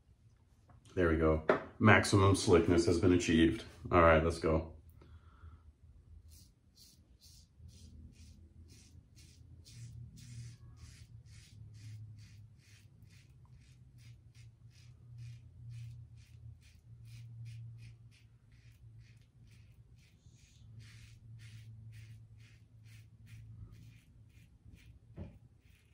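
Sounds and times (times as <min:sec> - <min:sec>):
razor scraping stubble: 0:06.3 - 0:25.9.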